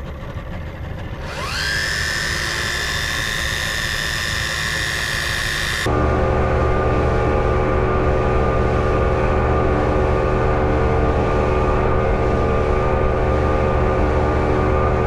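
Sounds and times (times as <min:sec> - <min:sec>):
boat engine droning: 0:00.0 - 0:15.0
electric fishing reel motor whine: 0:01.2 - 0:06.0.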